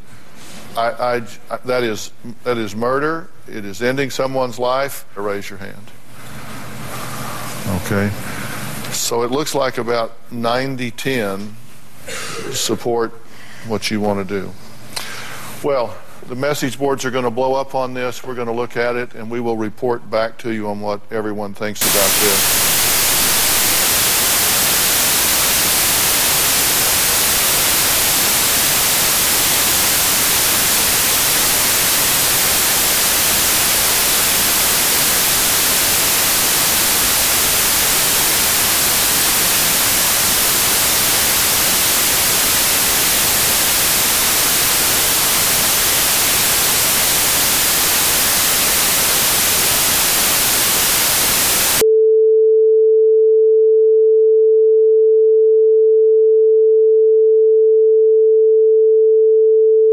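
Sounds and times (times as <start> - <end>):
steady pure tone: 21.8 - 51.8
white noise hiss: 21.8 - 51.8.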